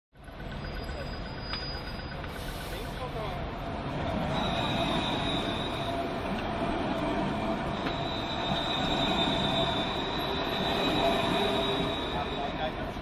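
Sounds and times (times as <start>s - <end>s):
city street noise: 0.1s - 13.0s
tram wheels squealing on rails: 0.2s - 13.0s.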